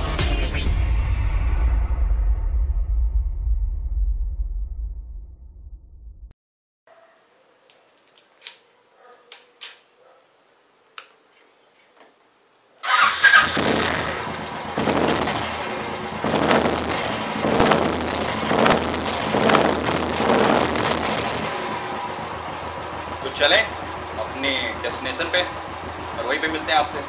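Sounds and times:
motorcycle engine idling: 12.9 - 27.0.

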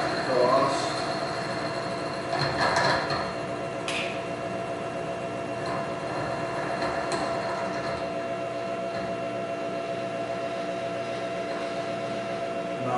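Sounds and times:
milling machine whine: 0.0 - 12.9.

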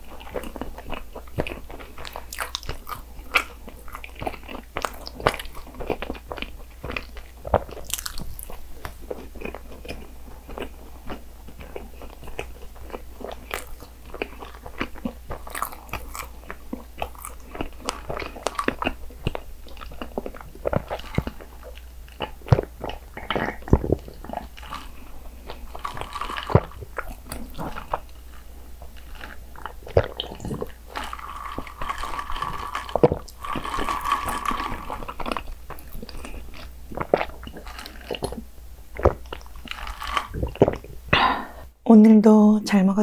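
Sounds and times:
sipping and swallowing: 29.0 - 41.6.

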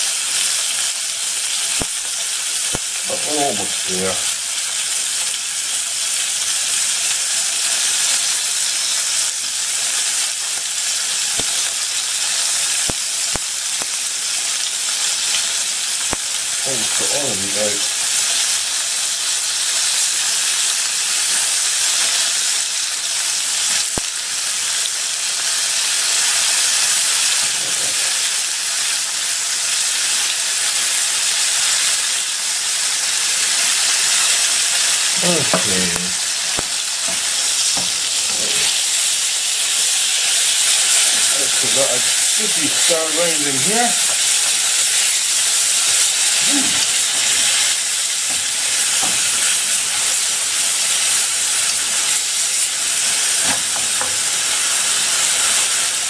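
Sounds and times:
meat sizzling in hot oil: 0.0 - 56.0.

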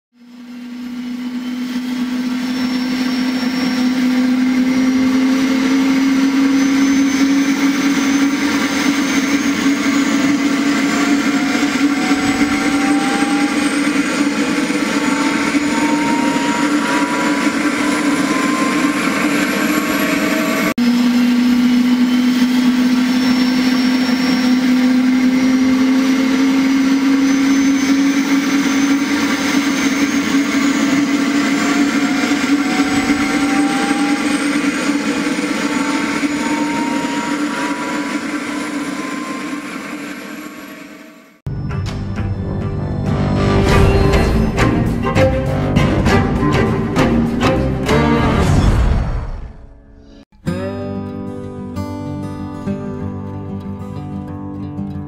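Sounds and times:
small electric motor hum: 0.2 - 41.3
propeller whine: 0.2 - 50.2.

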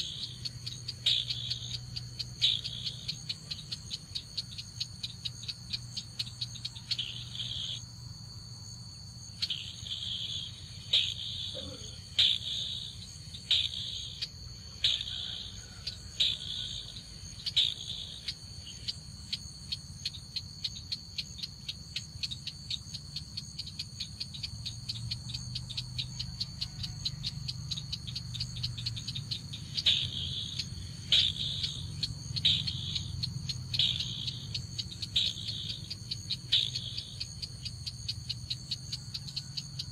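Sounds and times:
rapid clicking call: 0.0 - 4.2, 10.9 - 12.8, 13.4 - 15.2, 25.1 - 39.9
high insect-like buzz: 0.0 - 39.9.

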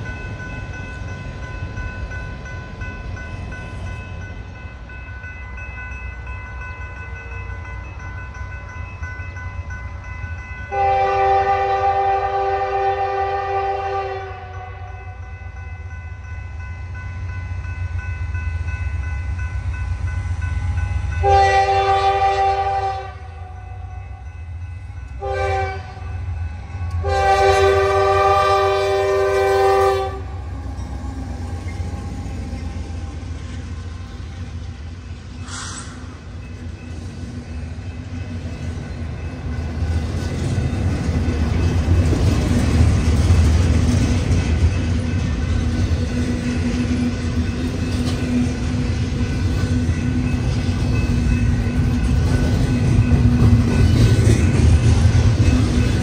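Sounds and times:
freight train rumble: 0.0 - 56.0
locomotive air horn: 10.7 - 15.1, 21.2 - 23.6, 25.2 - 26.2, 26.9 - 30.6.

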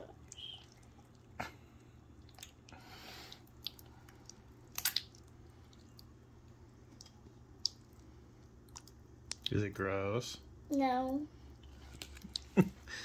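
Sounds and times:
slime squishing and popping: 4.7 - 5.3.

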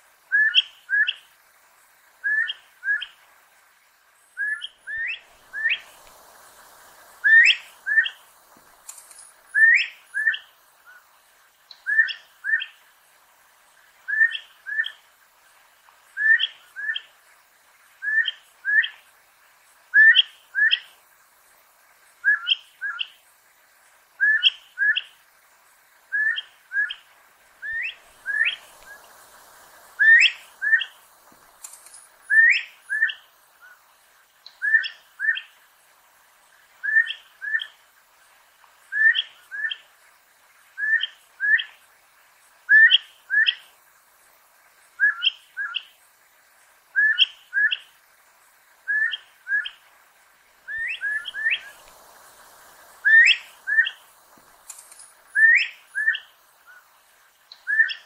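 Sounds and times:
bird rising whistles: 4.4 - 5.9, 7.2 - 8.2, 27.6 - 29.1, 30.0 - 31.0, 32.3 - 33.2, 50.7 - 51.8, 53.0 - 54.0, 55.3 - 56.3, 57.7 - 58.0.

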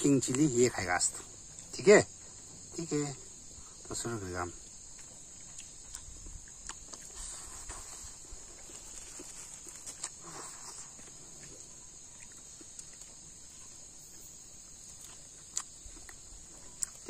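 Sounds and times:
insects chorus: 0.0 - 17.0
person chewing with mouth smacks: 4.6 - 17.0.

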